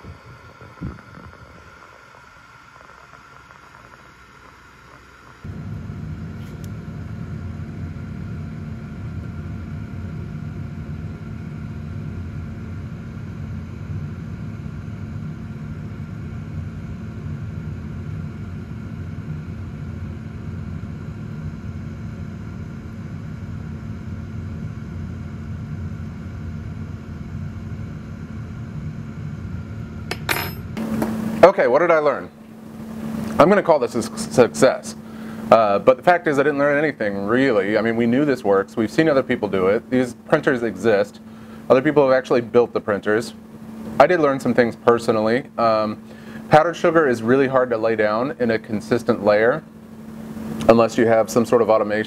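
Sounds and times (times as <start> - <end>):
motor humming: 0.0 - 12.1, 28.6 - 42.2.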